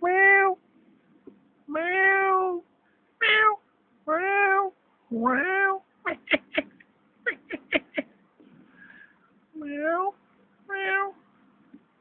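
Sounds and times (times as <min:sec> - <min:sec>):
cat meowing: 0:00.0 - 0:00.6, 0:03.2 - 0:04.7, 0:10.7 - 0:11.2.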